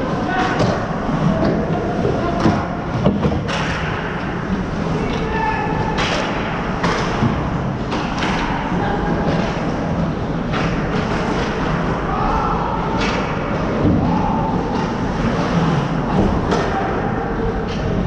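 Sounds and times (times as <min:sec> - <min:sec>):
skates scraping ice: 0:13.7 - 0:16.9.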